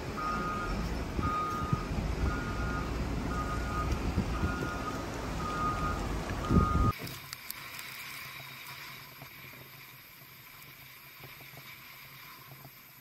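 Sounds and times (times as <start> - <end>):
wheel loader engine running: 0.0 - 6.9
backup alarm beeping: 0.1 - 7.0.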